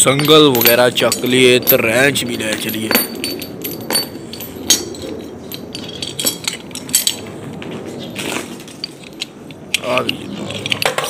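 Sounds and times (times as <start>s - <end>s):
wrench clanking: 0.0s - 7.4s
chain links clinking: 0.0s - 11.0s.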